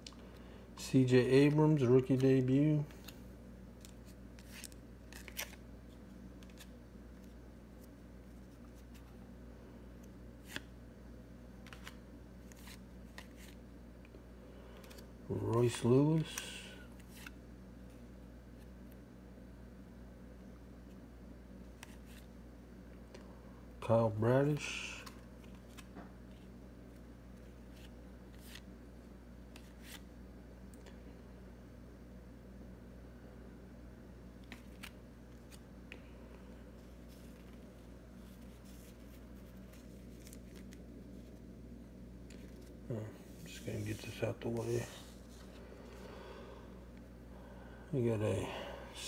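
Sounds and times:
low steady hum: 0:00.0 - 0:49.0
cards flipping with papery swish: 0:03.8 - 0:09.2, 0:10.0 - 0:10.7, 0:11.6 - 0:13.6, 0:14.7 - 0:17.4, 0:21.7 - 0:22.3, 0:25.0 - 0:28.7, 0:29.5 - 0:30.1, 0:34.4 - 0:36.0, 0:36.8 - 0:41.5, 0:42.2 - 0:45.6.

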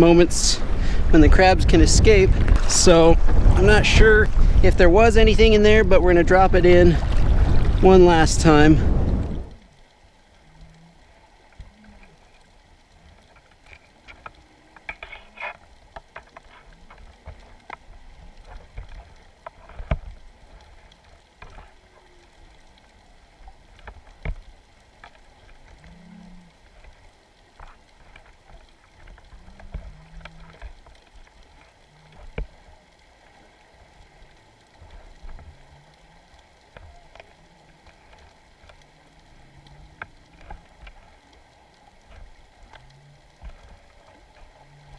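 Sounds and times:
underwater clicks and knocks: 0:13.1 - 0:44.9.

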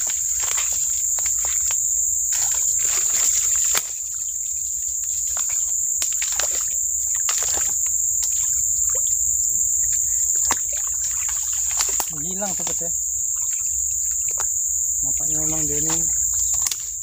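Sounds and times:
footsteps crunching dry leaves: 0:00.0 - 0:13.7
brushing past undergrowth: 0:00.0 - 0:17.0
high-pitched insect drone: 0:00.0 - 0:17.0.

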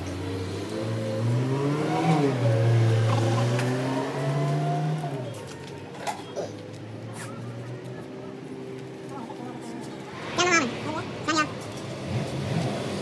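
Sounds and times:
engine revving: 0:00.0 - 0:05.4, 0:10.2 - 0:13.0.

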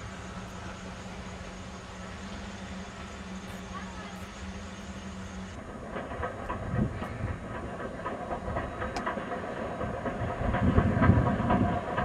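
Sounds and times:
steam train rumble: 0:00.0 - 0:12.0
wheels clicking on track: 0:00.0 - 0:12.0.

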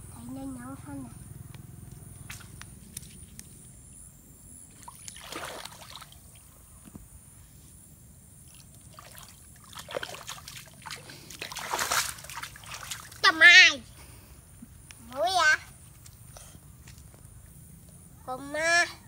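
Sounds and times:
muddy water splashing: 0:02.2 - 0:03.0, 0:04.7 - 0:06.5, 0:08.4 - 0:13.7.

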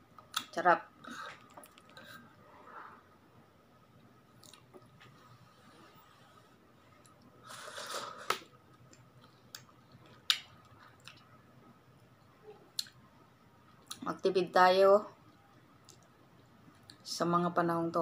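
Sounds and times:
person eating noisily: 0:07.4 - 0:08.5.

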